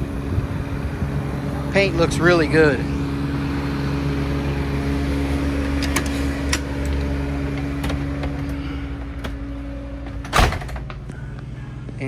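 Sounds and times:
diesel engine humming: 0.0s - 12.0s
footsteps clicks and knocks: 5.7s - 12.0s.

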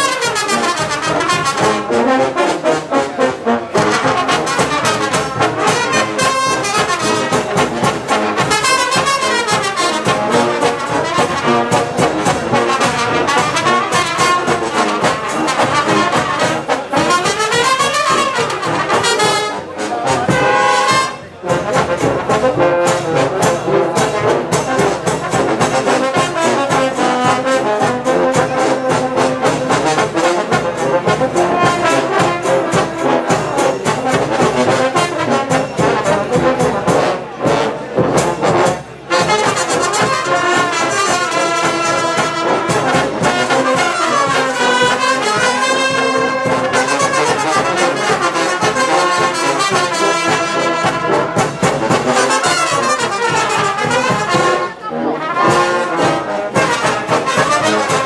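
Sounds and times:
steady drum beat: 0.0s - 54.6s, 55.5s - 58.0s
brass band playing: 0.0s - 58.0s.

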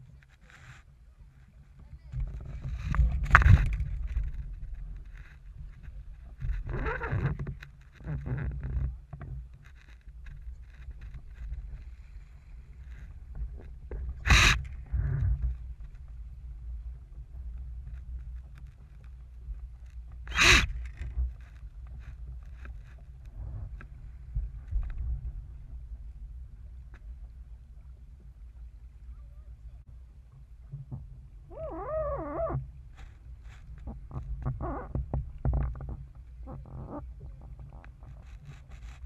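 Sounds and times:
wind buffeting the microphone: 1.2s - 7.6s, 10.2s - 18.4s.

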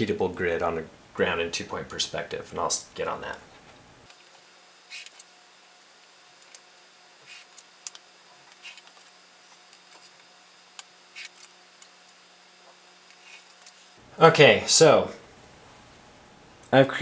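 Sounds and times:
pencil scratching on paper: 7.2s - 7.6s.

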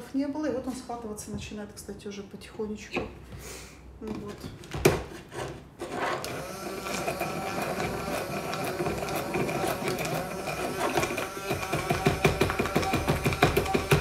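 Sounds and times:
immersion blender whirring: 5.8s - 14.0s.

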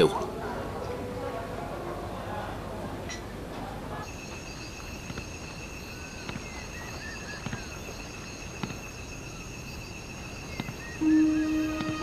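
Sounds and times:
insects chirring: 4.0s - 12.0s.

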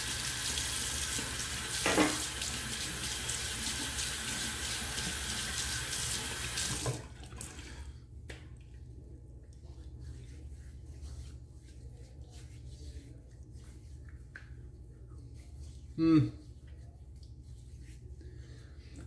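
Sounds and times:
sink tap running: 0.0s - 7.0s.

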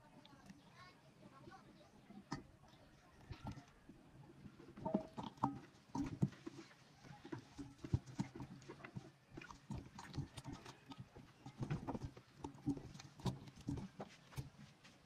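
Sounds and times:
hands squelching raw chicken: 4.6s - 15.0s.

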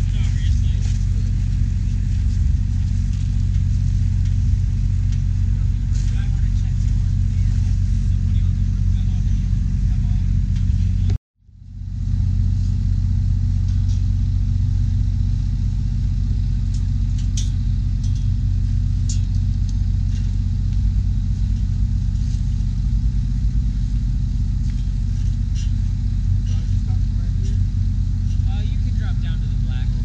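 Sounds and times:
loud low engine hum: 0.0s - 30.0s.

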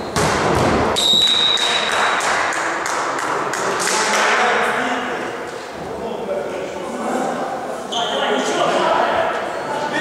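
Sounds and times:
volleyball smack: 0.1s - 2.3s
referee whistle blast: 1.0s - 1.8s
sharp taps or claps: 1.5s - 4.4s.

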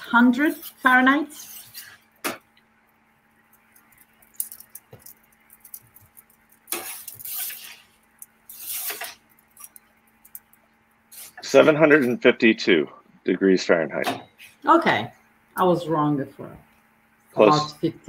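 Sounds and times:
metal peel scraping on stone: 0.6s - 2.0s, 6.7s - 10.4s.

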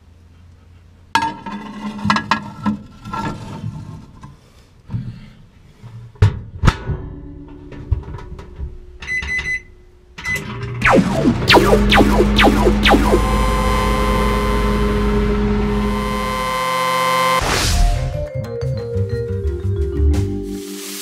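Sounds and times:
background music with drums: 18.4s - 20.7s.

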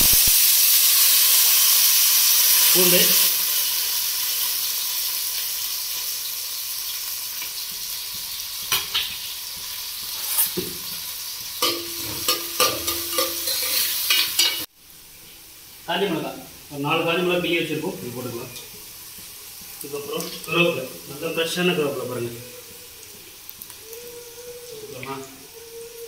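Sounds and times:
onions sizzling in oil: 0.0s - 26.0s
metal spoon scraping pot: 11.6s - 14.7s.

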